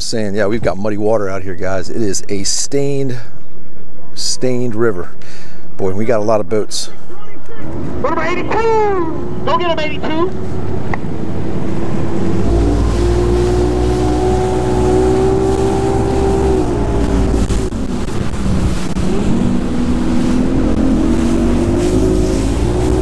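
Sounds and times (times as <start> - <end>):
outboard motor at high speed: 10.4 - 23.0
wind buffeting the microphone: 10.4 - 23.0.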